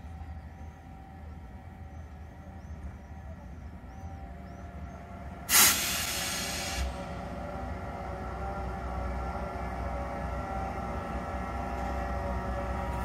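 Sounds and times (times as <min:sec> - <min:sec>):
diesel locomotive rumbling: 0:00.0 - 0:13.0
compressed air hissing: 0:05.5 - 0:07.0.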